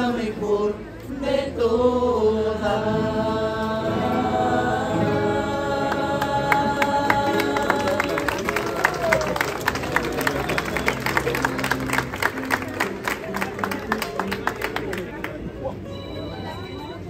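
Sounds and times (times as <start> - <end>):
group singing in chorus: 0.0 - 8.7
handclaps: 6.8 - 15.4.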